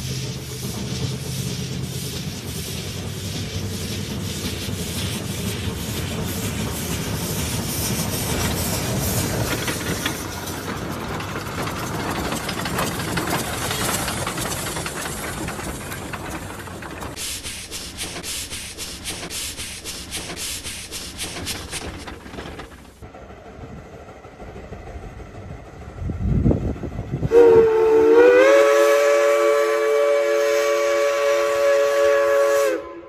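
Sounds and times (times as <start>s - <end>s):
steam venting hiss: 0.0s - 10.8s, 17.1s - 23.0s
steam locomotive chuffing: 0.0s - 33.0s.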